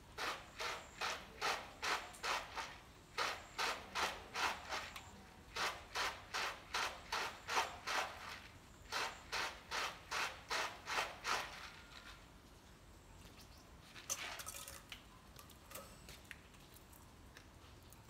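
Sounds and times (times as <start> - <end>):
hand rasping feed in plastic tub: 0.2 - 12.2.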